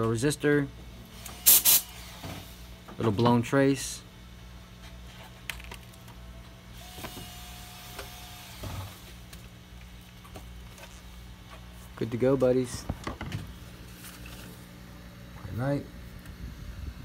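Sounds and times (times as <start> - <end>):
cooling fan hum: 0.0 - 17.0.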